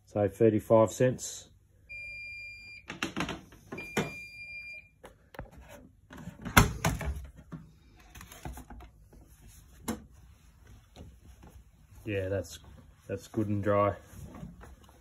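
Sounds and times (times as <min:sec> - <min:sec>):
dryer beeping: 0:01.9 - 0:05.0
towels being handled: 0:07.8 - 0:15.0.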